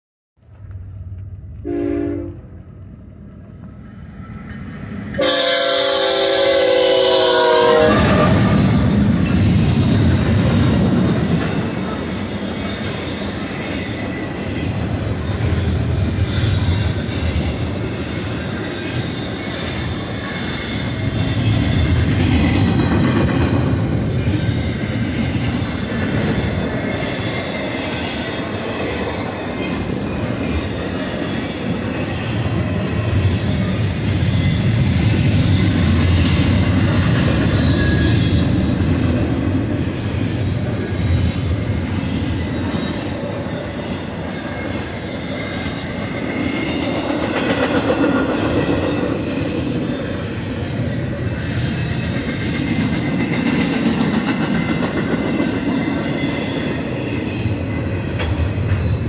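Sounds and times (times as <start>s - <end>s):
steel wheels rumbling on rails: 0.4s - 59.0s.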